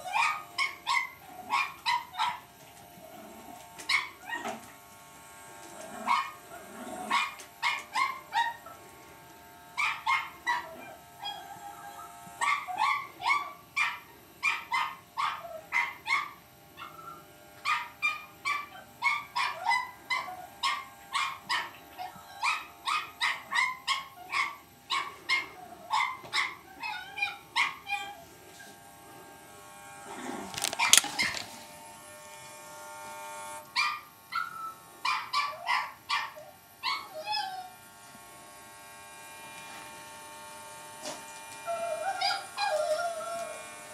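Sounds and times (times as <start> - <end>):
puppy barking and yipping: 0.0 - 2.5, 3.8 - 4.6, 6.1 - 6.4, 7.1 - 8.8, 9.8 - 28.2, 30.4 - 31.6, 33.8 - 37.7, 41.7 - 43.6.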